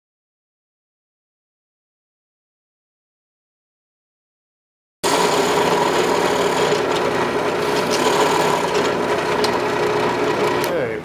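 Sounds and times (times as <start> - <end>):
drill bit cutting wood: 5.0 - 11.0
drill press motor hum: 5.0 - 11.0.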